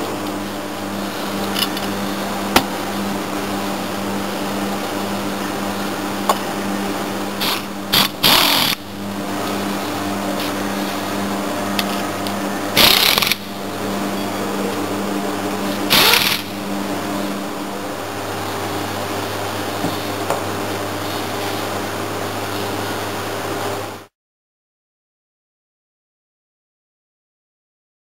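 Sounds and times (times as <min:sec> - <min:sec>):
steady low hum: 0:00.0 - 0:24.1
torque wrench ratcheting: 0:07.4 - 0:08.8, 0:12.8 - 0:13.4, 0:15.9 - 0:16.5.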